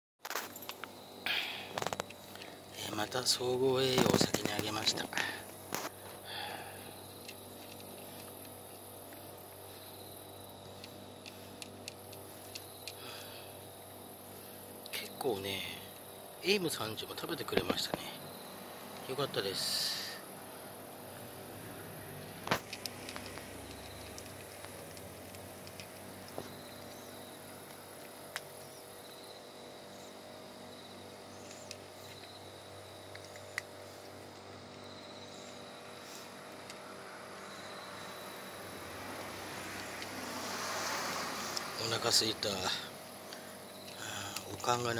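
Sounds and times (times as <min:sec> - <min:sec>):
insects chirring: 0:00.2 - 0:44.9
cat crunching dry kibble: 0:22.4 - 0:28.6
sharp clicks: 0:22.4 - 0:28.7.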